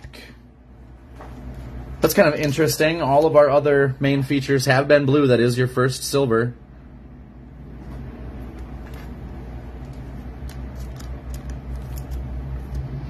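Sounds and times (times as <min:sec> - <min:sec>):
low mechanical rumble: 0:00.0 - 0:13.0
trading cards clicking: 0:09.8 - 0:13.0.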